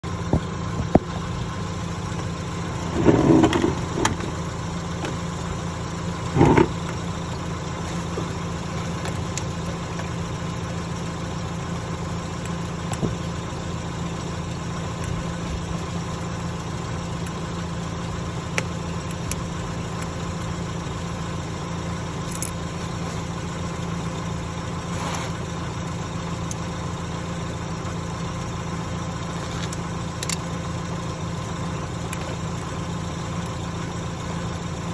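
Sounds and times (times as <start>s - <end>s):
low mechanical hum: 0.0s - 34.9s
clatters: 2.7s - 5.2s, 6.2s - 10.2s.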